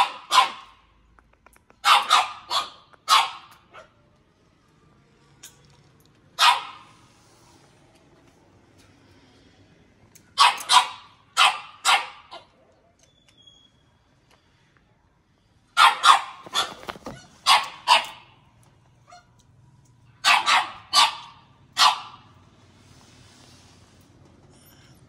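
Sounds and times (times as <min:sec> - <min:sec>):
dog barking: 0:00.0 - 0:00.9, 0:01.8 - 0:04.0, 0:06.4 - 0:07.0, 0:10.3 - 0:12.6, 0:15.8 - 0:18.4, 0:20.2 - 0:22.4.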